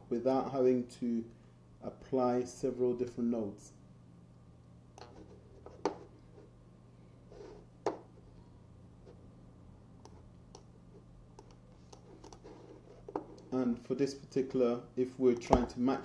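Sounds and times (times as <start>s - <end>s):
low electrical hum: 0.0s - 16.0s
computer mouse clicks: 10.0s - 10.7s, 11.4s - 12.4s.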